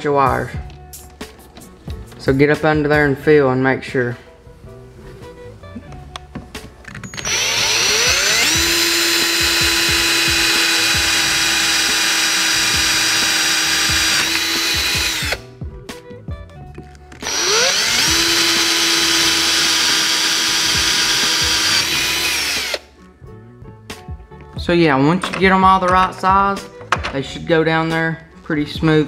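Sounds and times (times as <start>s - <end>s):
power drill whining: 7.0s - 15.5s, 17.2s - 22.9s.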